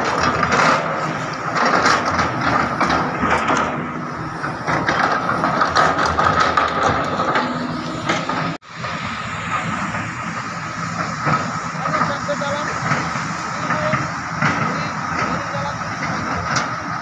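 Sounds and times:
clanks and knocks: 0:00.0 - 0:08.6, 0:10.9 - 0:17.0
diesel engine rumble: 0:00.0 - 0:17.0
high whine: 0:00.0 - 0:17.0.

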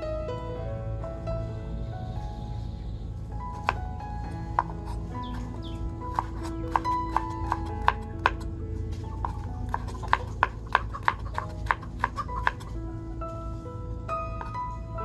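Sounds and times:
plucked-string music: 0:03.3 - 0:15.0.

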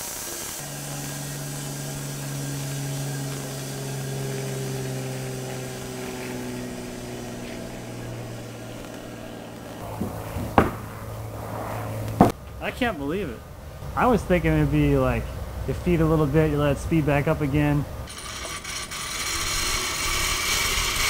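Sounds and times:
bandsaw motor and blade humming: 0:00.0 - 0:11.3, 0:17.6 - 0:21.0
sharp knocks: 0:09.8 - 0:11.3, 0:12.1 - 0:12.4.

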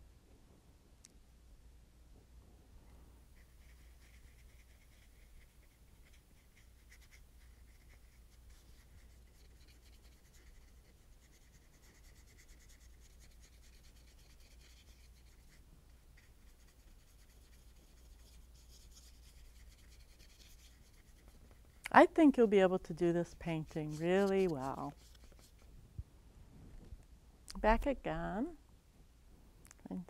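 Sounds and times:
paintbrush scratching on paper: 0:03.3 - 0:25.7.

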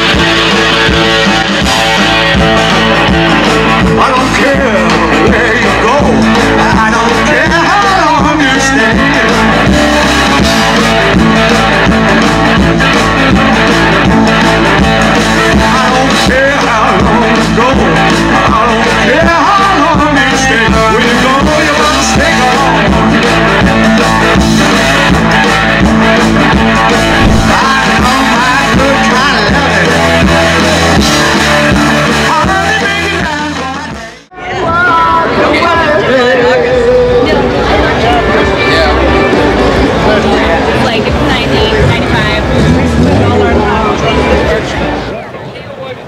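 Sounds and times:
rock and roll music: 0:00.0 - 0:45.1
guitar: 0:00.0 - 0:46.0
person singing: 0:26.9 - 0:30.1.

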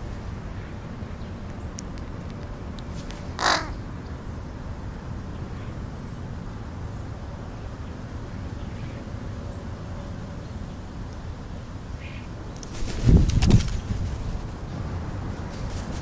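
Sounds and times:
crow cawing: 0:03.4 - 0:03.8.

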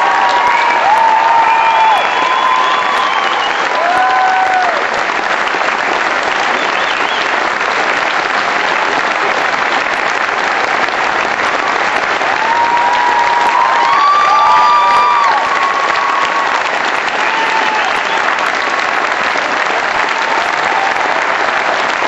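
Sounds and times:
audience applause: 0:00.0 - 0:22.0.

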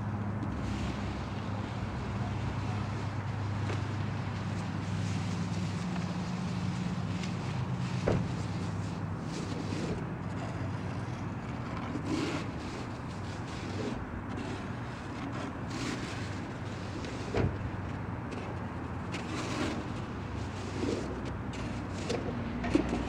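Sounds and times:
street traffic hum: 0:00.0 - 0:23.0
snow shovel scraping snow: 0:07.9 - 0:10.5, 0:12.0 - 0:17.3, 0:19.1 - 0:22.1.

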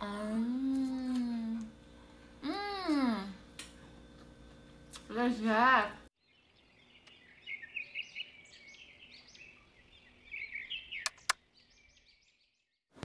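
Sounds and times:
birds chirping: 0:06.2 - 0:12.8
sharp clicks: 0:11.0 - 0:11.4.

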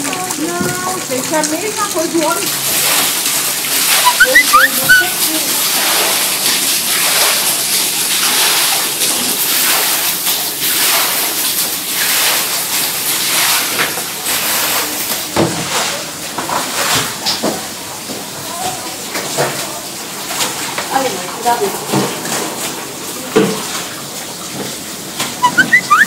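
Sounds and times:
floodwater rushing: 0:00.0 - 0:15.4, 0:25.0 - 0:26.0.

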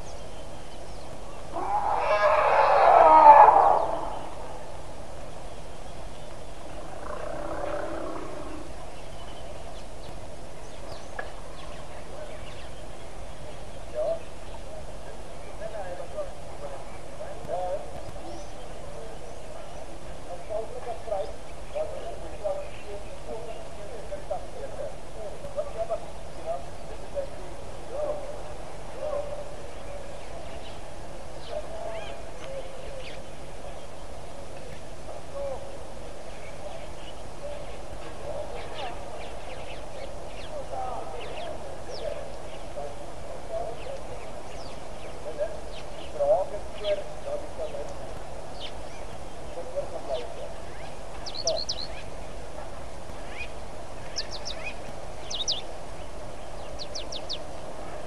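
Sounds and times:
short low bird calls: 0:00.0 - 0:30.8, 0:31.4 - 0:52.4, 0:53.2 - 0:57.6
outdoor background hiss: 0:00.0 - 0:58.0
wild animal calls: 0:01.5 - 0:04.9, 0:06.7 - 0:08.8.

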